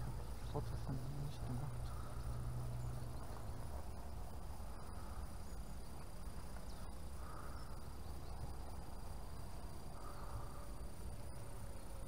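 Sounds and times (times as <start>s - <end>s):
faint high-pitched whine: 0.0s - 12.0s.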